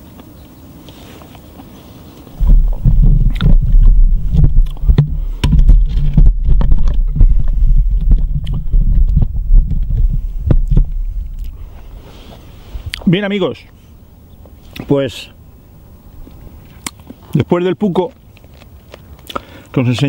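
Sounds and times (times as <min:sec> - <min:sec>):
sharp knocks and clicks: 0:02.4 - 0:11.5
camera handling rumble: 0:02.4 - 0:12.0.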